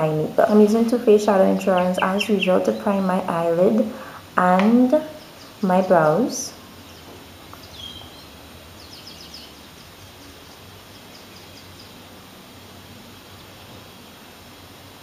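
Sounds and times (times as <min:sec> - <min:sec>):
low hum and hiss: 0:00.0 - 0:15.0
small bird chirping: 0:01.5 - 0:03.1, 0:05.0 - 0:12.0.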